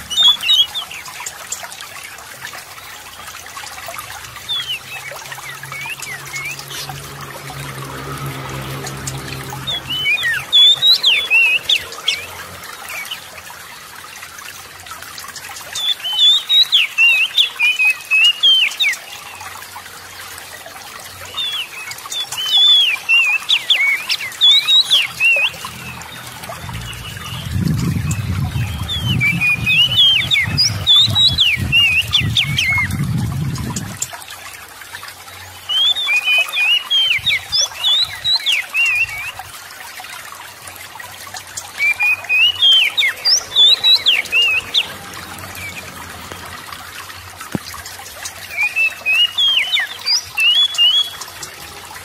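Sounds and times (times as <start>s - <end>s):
water trickling: 0.0s - 52.0s
bird singing sweeping notes: 4.4s - 13.2s, 21.2s - 34.1s
low rumble: 26.5s - 30.9s.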